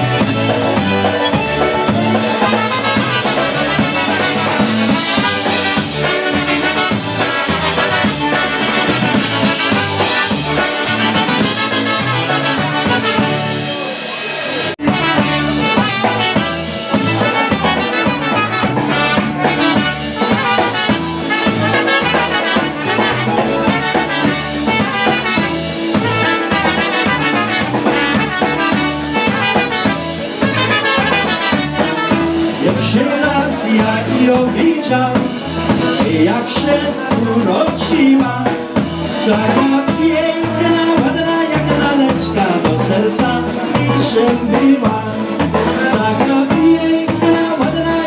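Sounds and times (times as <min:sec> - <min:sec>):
trumpets playing melody: 0:00.0 - 0:14.2, 0:14.8 - 0:33.2
piano accordion: 0:00.0 - 0:32.6
concertina: 0:00.0 - 0:48.0
drum kit beat: 0:00.0 - 0:48.0
electric bass: 0:00.0 - 0:48.0.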